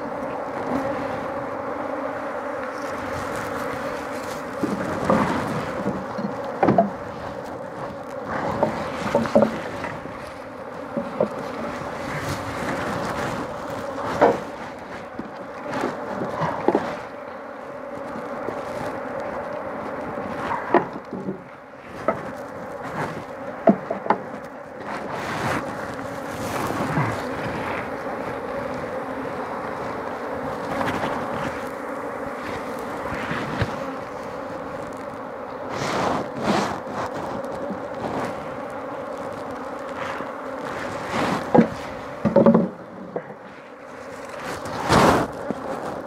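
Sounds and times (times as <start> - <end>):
bees buzzing: 0.0 - 46.0.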